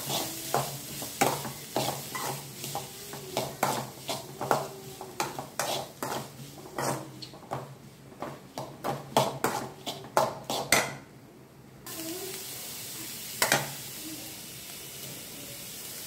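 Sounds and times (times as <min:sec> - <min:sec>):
metal spoon scraping a pan: 0:00.0 - 0:07.4, 0:09.2 - 0:11.0
onions sizzling in oil: 0:00.0 - 0:07.6, 0:11.9 - 0:16.0.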